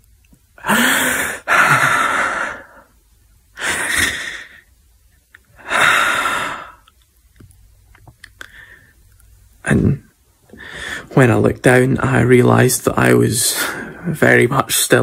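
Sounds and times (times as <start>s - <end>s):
man breathing heavily: 0.6s - 3.0s, 3.6s - 4.8s, 5.6s - 6.9s, 10.5s - 11.2s.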